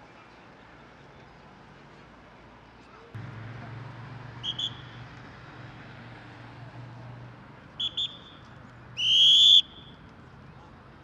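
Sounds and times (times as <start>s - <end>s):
traffic engine hum: 0.4s - 11.0s
police whistle toots: 4.4s - 5.0s, 7.8s - 8.4s, 9.0s - 9.9s.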